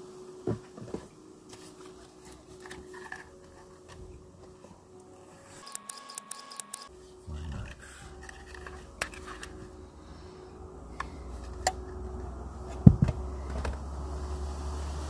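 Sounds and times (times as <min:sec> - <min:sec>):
steady low rumble: 0:06.9 - 0:15.0
heavy thump: 0:12.8 - 0:13.8.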